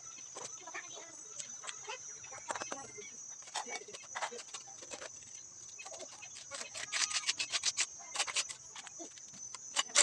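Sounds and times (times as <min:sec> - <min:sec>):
trowel scraping and tapping: 0:03.4 - 0:10.0.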